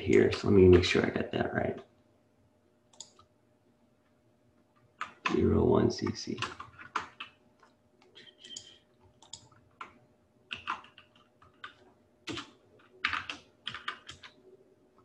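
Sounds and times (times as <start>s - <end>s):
computer keyboard typing: 2.9s - 3.3s, 5.0s - 14.4s.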